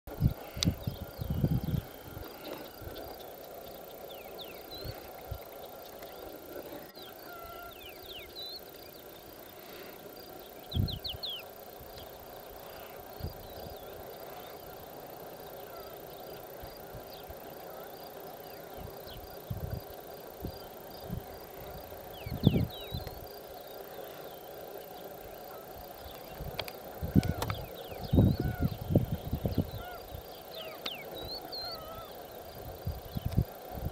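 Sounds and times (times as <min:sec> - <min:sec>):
insect chirping: 0:00.1 - 0:33.9.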